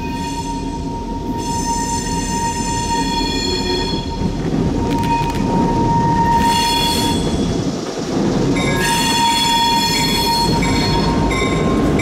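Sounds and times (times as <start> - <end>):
locomotive engine rumble: 0.0 - 12.0
wheel flange squeal: 5.0 - 7.5, 8.6 - 12.0.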